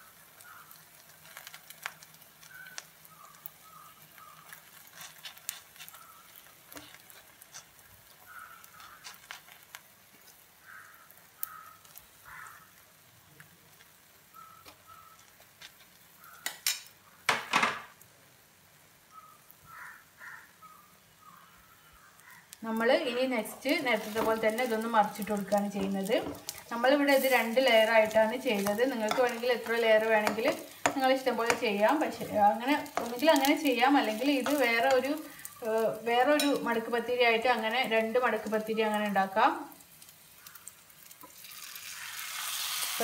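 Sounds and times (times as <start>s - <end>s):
batter sizzling: 0.0s - 43.0s
metal spoon scraping frying pan: 4.7s - 7.8s, 23.2s - 35.4s.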